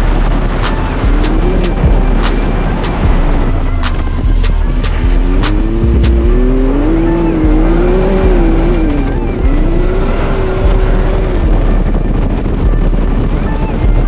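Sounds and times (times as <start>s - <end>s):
low rumble of wind: 0.0s - 14.0s
off-road vehicle engine: 0.0s - 14.0s.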